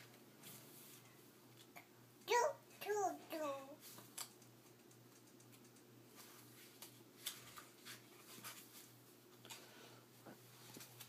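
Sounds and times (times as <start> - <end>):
paper rustling: 6.2 - 9.0.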